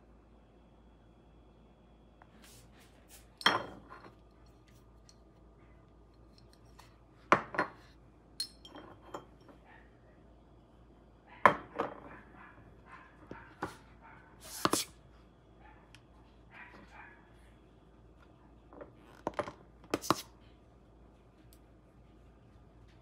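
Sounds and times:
glass bottle knocking on countertop: 7.3s - 7.8s
faint glass ringing: 8.4s - 9.4s.

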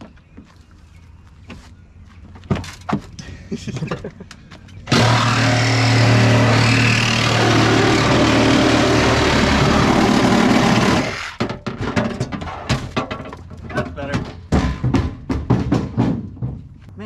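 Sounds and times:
reciprocating saw cutting metal: 4.8s - 11.4s.

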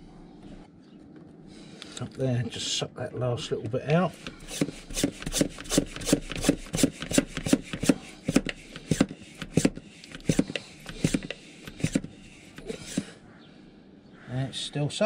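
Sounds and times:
hand pump rasping strokes: 4.1s - 13.2s.

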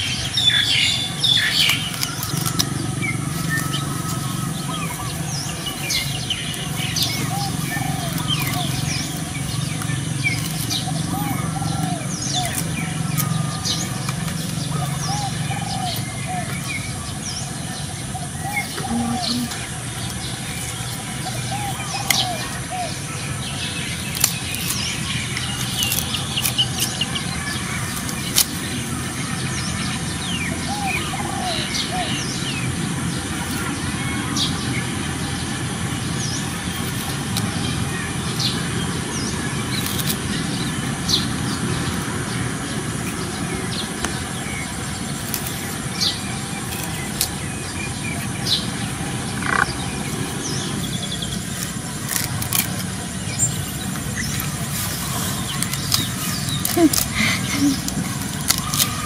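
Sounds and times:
small birds chirping: 0.0s - 59.0s
sharp clicks: 49.4s - 49.8s.

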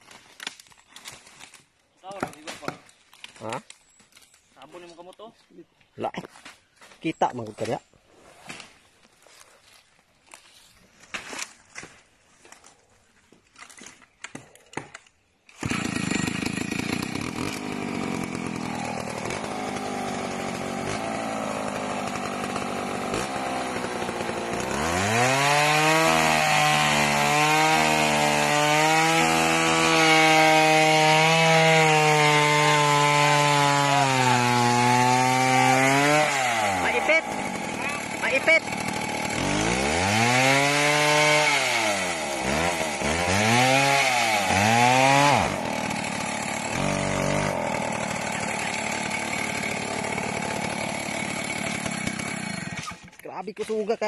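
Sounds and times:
chainsaw cutting tree trunk: 0.0s - 3.4s, 13.7s - 53.9s.

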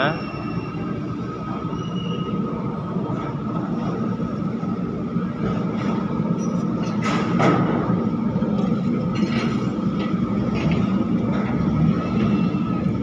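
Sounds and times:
low engine hum: 0.2s - 13.0s
machinery clatter: 5.4s - 13.0s.

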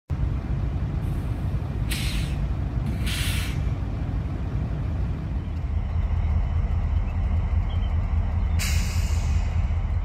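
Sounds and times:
locomotives idling low rumble: 0.1s - 10.0s
air hissing: 1.9s - 3.7s.

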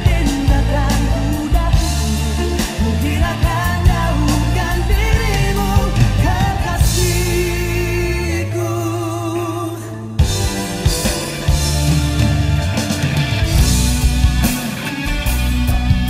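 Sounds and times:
backing band with drums: 0.0s - 7.8s, 10.2s - 16.0s
man singing pop song: 0.0s - 11.3s.

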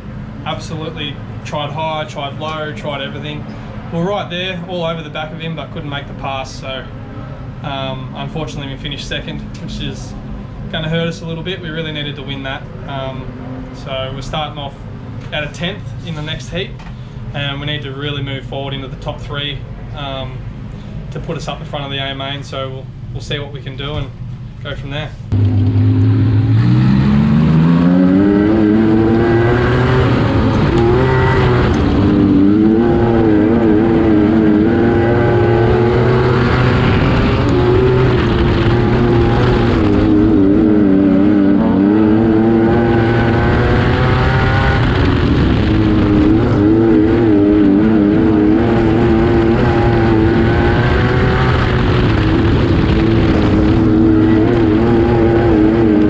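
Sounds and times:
race car engine racing: 25.3s - 56.0s.

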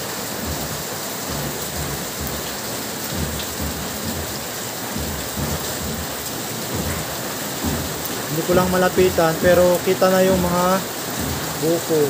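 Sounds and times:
rain falling on foliage: 0.0s - 12.0s.

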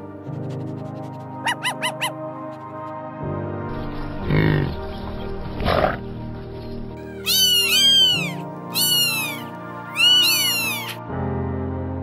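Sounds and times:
background music: 0.0s - 12.0s
cat meowing: 7.0s - 11.0s.

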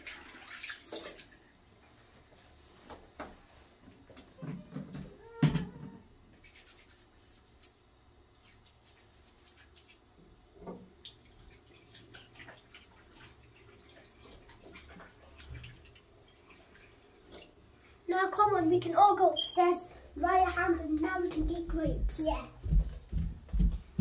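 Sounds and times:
tap water splashing: 0.0s - 1.4s
hands rubbing: 6.4s - 10.0s.

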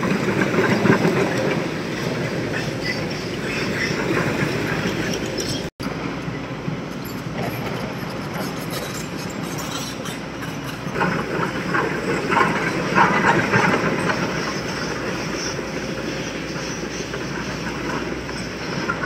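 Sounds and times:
diesel engine rumble: 0.0s - 19.0s.

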